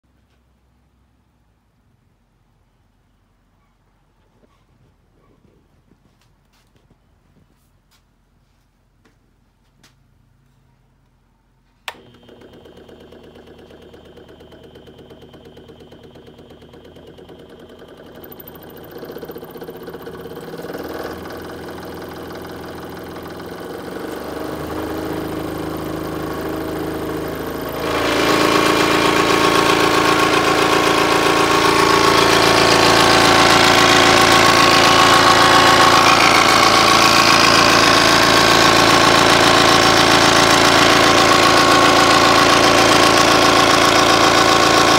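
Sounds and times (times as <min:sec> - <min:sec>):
scroll saw running: 0:11.9 - 0:44.9.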